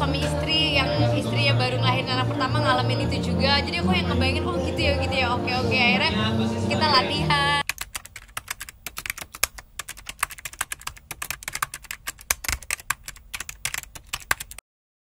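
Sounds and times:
keyboard key clicks: 7.6 - 14.6.

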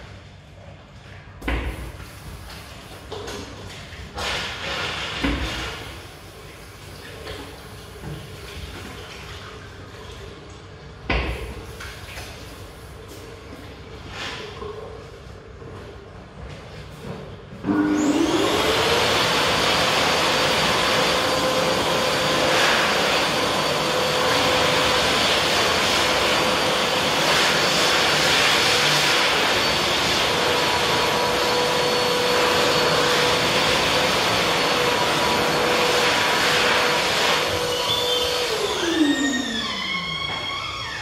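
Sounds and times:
hand dryer motor whine: 17.6 - 41.0.

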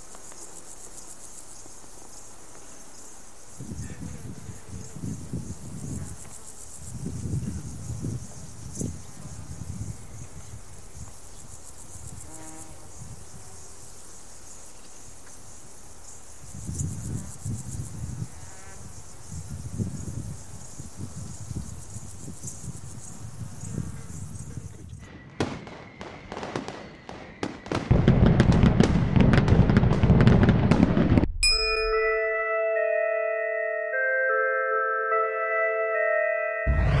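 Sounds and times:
crickets chirping: 0.0 - 28.6
wind rumble on microphone: 3.6 - 13.5, 16.4 - 25.4
fireworks crackling bangs: 25.0 - 31.4
heavy low rumble: 36.7 - 37.0.

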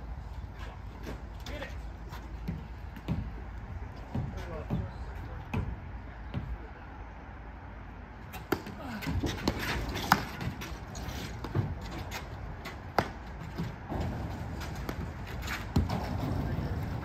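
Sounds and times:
players' voices: 1.0 - 2.6, 13.9 - 17.0
paddles hitting ball: 8.3 - 16.5.

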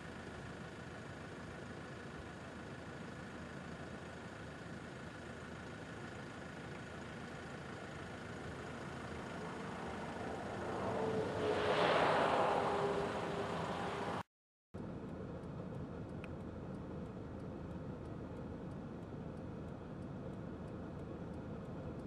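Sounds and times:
road vehicle approaching: 0.2 - 18.7
passing traffic hum: 6.5 - 18.9.

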